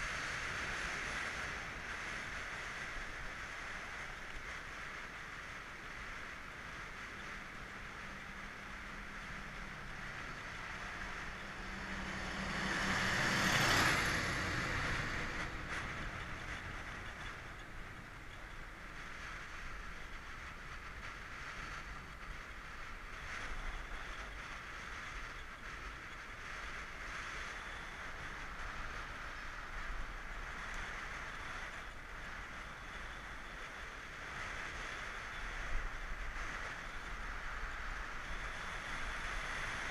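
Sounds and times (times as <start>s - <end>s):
tyres on asphalt: 0.0s - 39.9s
wind rushing over microphone: 0.0s - 39.9s.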